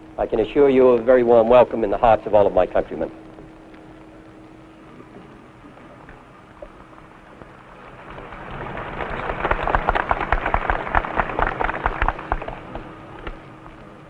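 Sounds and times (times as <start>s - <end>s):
crowd applauding: 8.4s - 13.4s.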